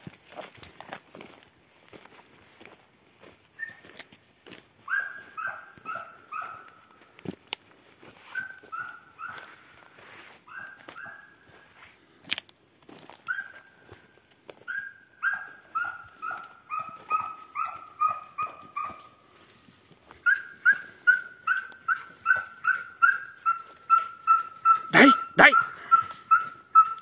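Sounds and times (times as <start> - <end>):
dog barking: 4.8 - 6.9, 8.3 - 9.6, 10.5 - 11.5, 13.2 - 13.8, 14.7 - 19.2, 20.2 - 27.0.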